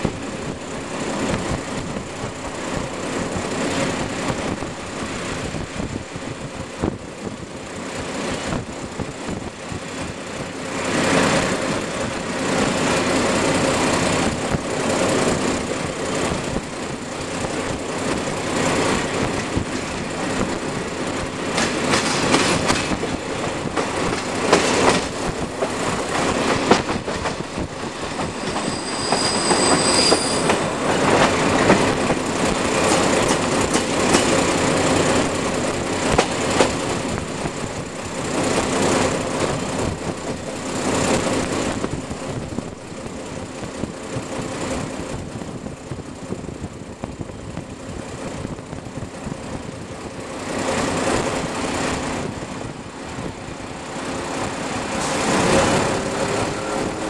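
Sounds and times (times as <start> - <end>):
train wheels clattering over rail joints: 8.5 - 46.0, 54.3 - 56.2
high wheel squeal: 27.9 - 30.9.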